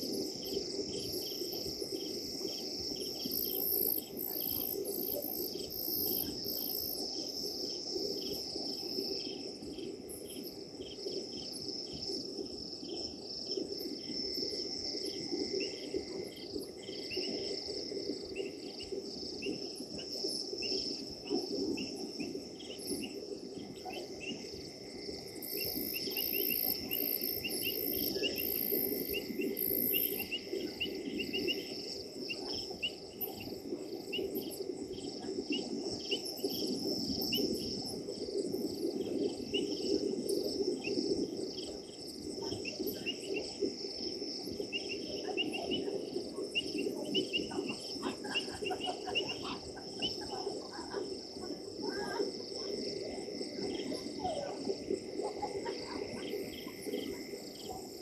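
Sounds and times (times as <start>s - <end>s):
crickets and insects chirping: 0.0s - 58.0s.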